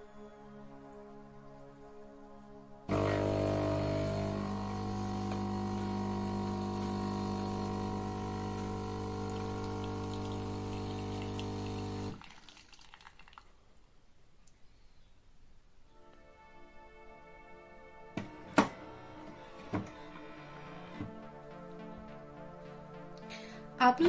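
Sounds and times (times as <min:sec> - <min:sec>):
espresso machine pump buzzing: 0:02.9 - 0:12.2.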